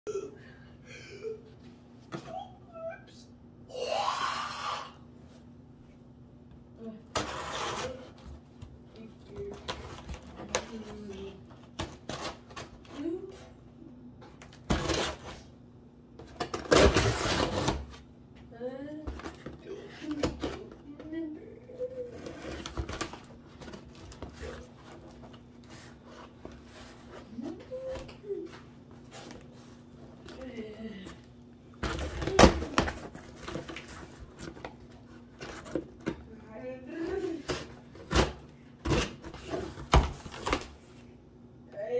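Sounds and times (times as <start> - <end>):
faint steady hum: 0.1 - 41.9
rubbing and scraping cardboard box: 7.1 - 8.2
knife cutting packing tape: 14.7 - 15.4, 16.4 - 17.9.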